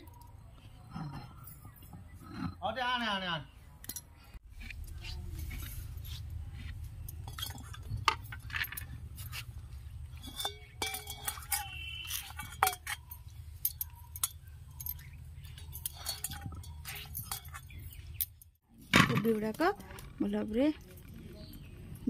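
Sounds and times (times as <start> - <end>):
clinks of plate and bowls: 7.1 - 8.9, 10.1 - 18.4.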